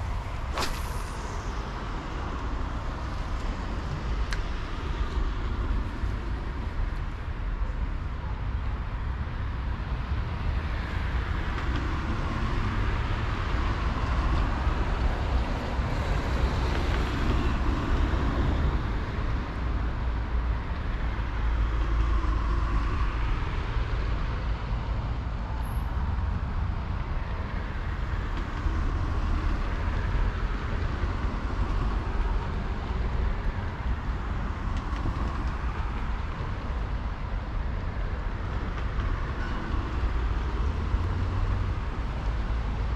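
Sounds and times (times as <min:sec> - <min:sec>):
road traffic rumble: 0:00.0 - 0:42.9
vehicles passing: 0:00.0 - 0:42.9.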